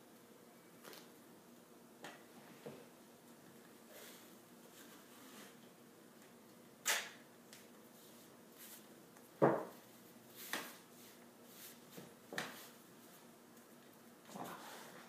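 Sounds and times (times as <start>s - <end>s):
tape ripping and rustling: 6.8s - 7.2s.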